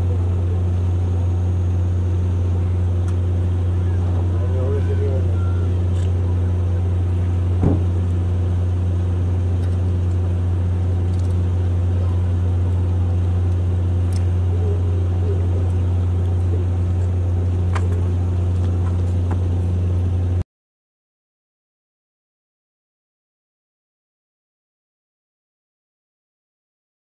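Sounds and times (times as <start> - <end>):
boat engine droning: 0.0 - 20.4
brief knock: 7.6 - 7.9.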